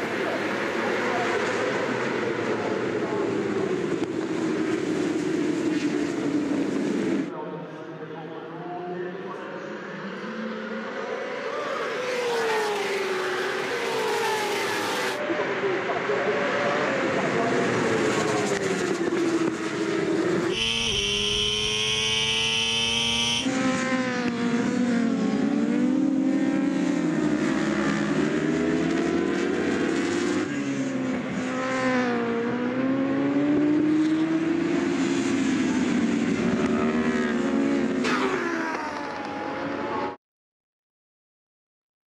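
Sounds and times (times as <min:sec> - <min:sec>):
racing motorcycle engines: 0:08.7 - 0:40.2.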